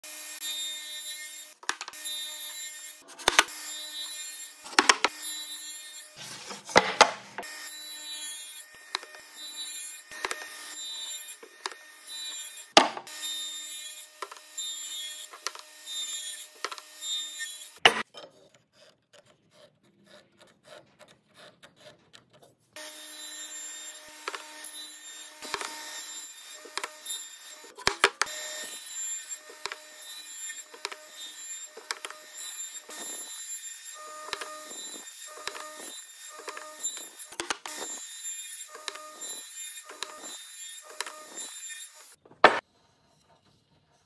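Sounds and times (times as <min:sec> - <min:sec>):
saw humming: 0:00.0 - 0:18.1, 0:22.8 - 0:42.6
saw blade cutting wood: 0:00.0 - 0:44.0
square tapping and scraping wood: 0:01.6 - 0:01.9, 0:03.2 - 0:03.5, 0:04.7 - 0:05.1, 0:06.2 - 0:07.4, 0:27.8 - 0:28.3, 0:35.4 - 0:35.7, 0:36.4 - 0:36.7, 0:37.4 - 0:37.9, 0:42.2 - 0:42.7.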